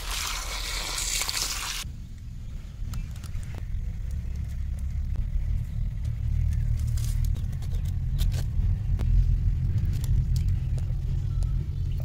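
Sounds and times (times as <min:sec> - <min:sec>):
low rumble: 0:01.8 - 0:12.0
bamboo basket clicks and rustles: 0:06.4 - 0:08.6.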